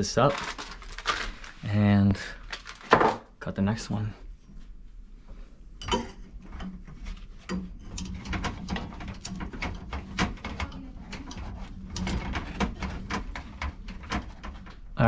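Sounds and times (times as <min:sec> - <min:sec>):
pipe cutter clicking and scraping: 0:05.9 - 0:14.8.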